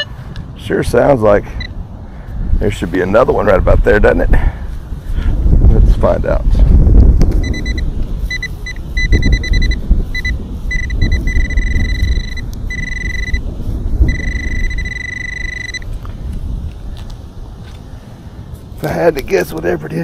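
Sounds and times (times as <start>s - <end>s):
high-pitched pinpointer beeps: 7.4s - 13.5s, 14.1s - 15.9s.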